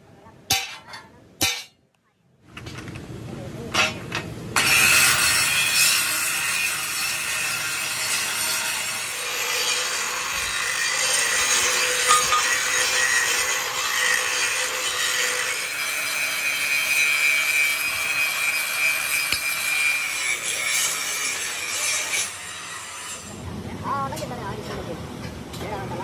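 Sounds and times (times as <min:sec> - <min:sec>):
angle grinder on steel: 0:04.6 - 0:23.4.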